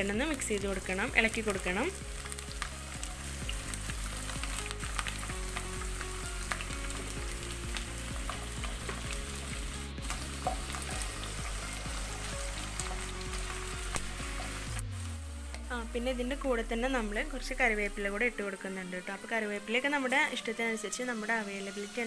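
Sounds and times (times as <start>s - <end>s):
spices sizzling in oil: 0.0s - 22.0s
spatula stirring: 3.4s - 14.8s.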